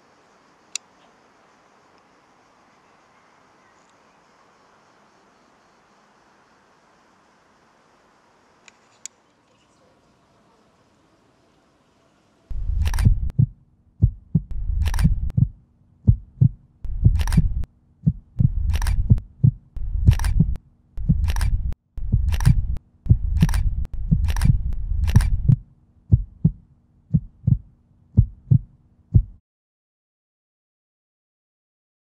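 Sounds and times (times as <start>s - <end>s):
sharp clicks: 12.5s - 13.5s, 14.4s - 15.4s, 16.9s - 17.7s, 18.4s - 19.2s, 19.8s - 25.6s
deep low pulsing throb: 12.5s - 29.4s.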